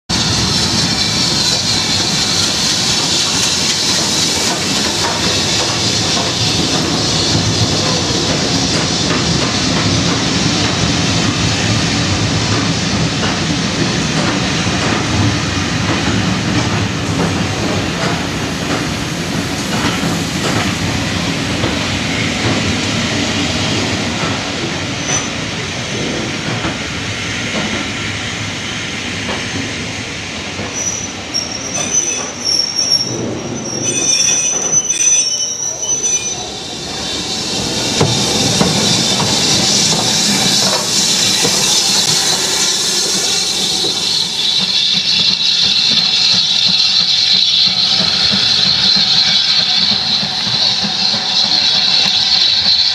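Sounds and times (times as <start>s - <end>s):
steam hissing: 0.1s - 34.0s, 35.8s - 52.9s
train wheels clicking over rail joints: 0.2s - 33.5s, 37.2s - 52.9s
wheel or brake squeals: 24.9s - 25.5s, 30.6s - 52.9s.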